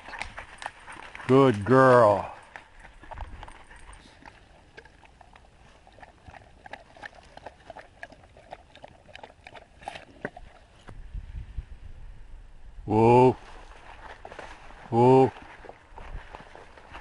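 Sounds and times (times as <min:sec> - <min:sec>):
dog lapping water: 0:02.2 - 0:10.8.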